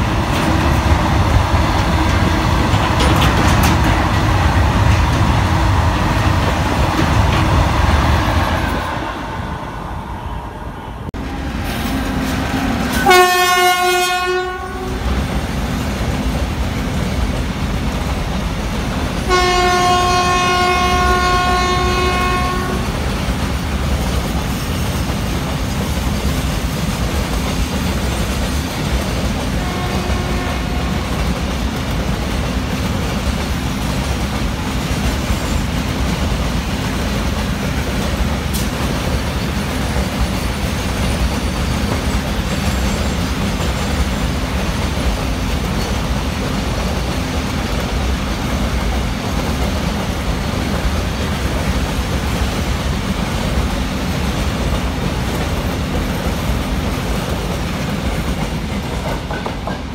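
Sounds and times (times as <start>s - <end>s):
freight train rumbling and clattering: 0.0s - 59.9s
train horn blast: 12.4s - 15.1s, 19.2s - 22.9s, 29.6s - 31.2s.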